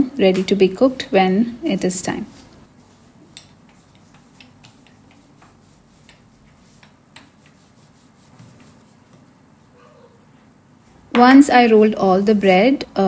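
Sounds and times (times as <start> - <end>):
dough roller rubbing: 2.3 - 9.7.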